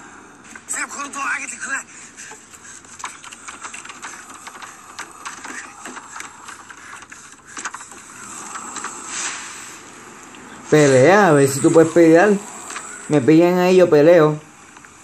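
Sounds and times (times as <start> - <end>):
rasping creature breathing: 1.9 - 10.7, 11.3 - 13.2
breathy hiss: 1.9 - 13.2.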